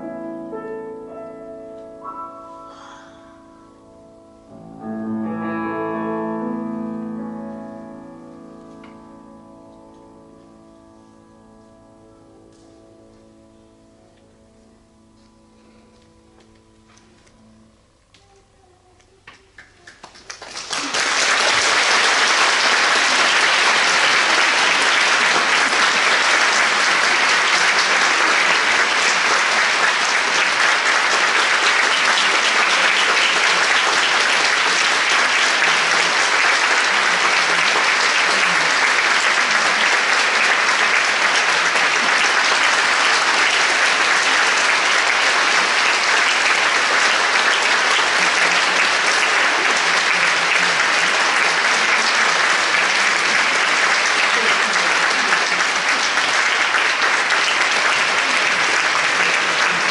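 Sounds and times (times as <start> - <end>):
audience applauding: 19.3 - 59.9.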